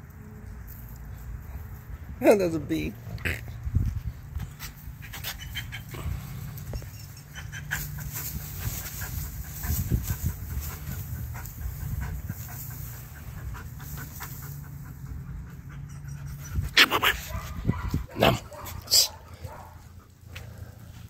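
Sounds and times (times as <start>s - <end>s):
dog panting: 4.9s - 21.0s.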